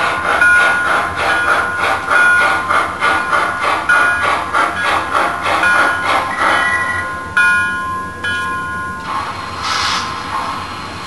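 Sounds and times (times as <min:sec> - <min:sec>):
steam locomotive chuffing: 0:00.0 - 0:11.0
bell ringing: 0:00.2 - 0:05.0, 0:05.6 - 0:09.1.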